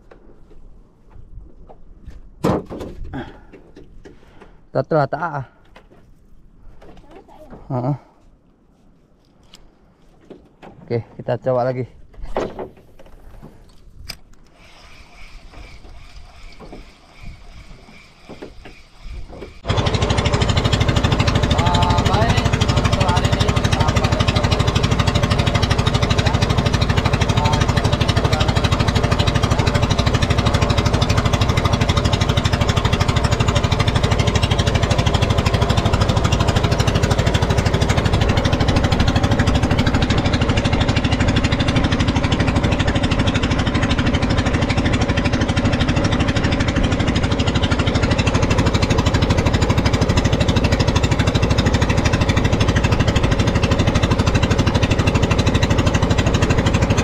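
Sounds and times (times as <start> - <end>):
boat engine knocking: 15.2 - 57.0.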